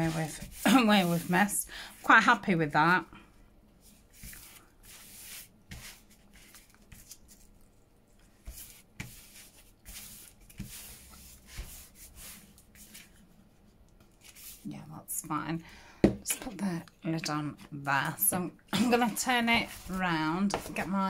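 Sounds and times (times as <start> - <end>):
paper rustling: 3.8 - 13.2.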